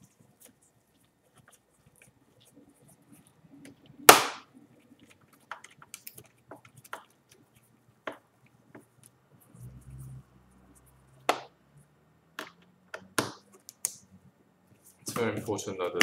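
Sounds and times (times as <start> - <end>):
sharp plastic snap: 4.1 - 4.5.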